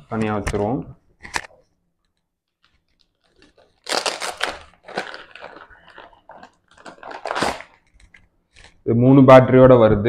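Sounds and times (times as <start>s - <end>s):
packaging wrap crinkling: 2.4s - 8.8s.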